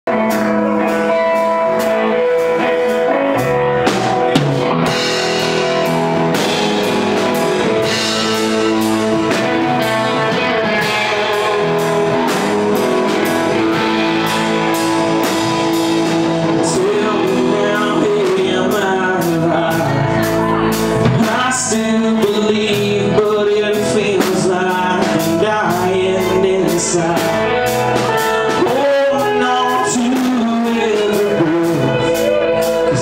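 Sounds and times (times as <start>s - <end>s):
bass guitar: 0.0s - 33.0s
electric guitars: 0.0s - 33.0s
drum kit beat: 0.1s - 33.0s
man singing: 7.6s - 33.0s.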